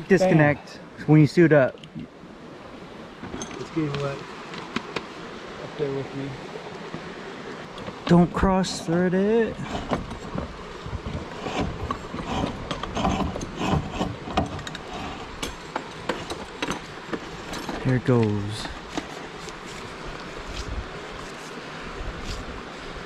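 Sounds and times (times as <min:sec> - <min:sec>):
steady rushing hiss: 0:00.0 - 0:23.0
wind buffeting microphone: 0:09.5 - 0:14.3.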